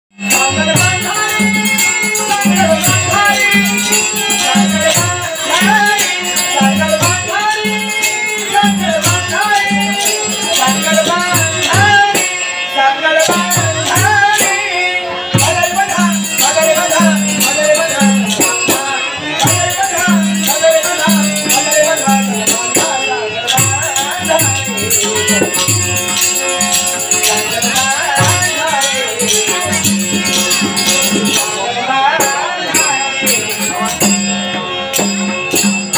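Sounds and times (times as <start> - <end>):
man singing: 0.1 - 35.9
jingling hand cymbals: 0.2 - 35.9
drum beat: 23.6 - 31.4.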